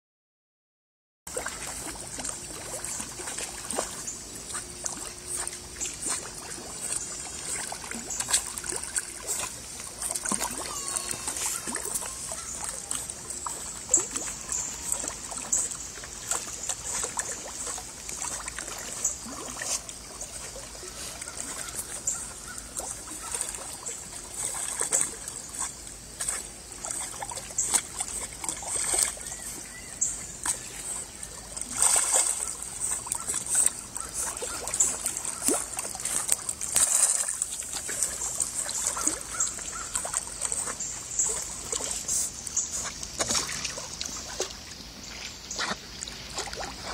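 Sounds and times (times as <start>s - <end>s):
dog paddling splashes: 1.3s - 46.9s
water trickling and lapping: 1.3s - 46.9s.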